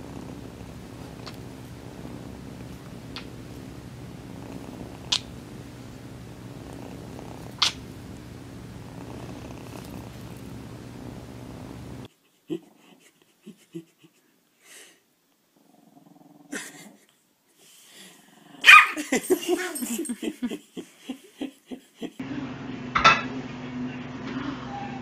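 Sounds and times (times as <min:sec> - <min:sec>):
small dog growling and barking: 0:00.0 - 0:08.2, 0:08.8 - 0:12.9, 0:15.5 - 0:17.0, 0:18.3 - 0:20.0, 0:24.2 - 0:25.0.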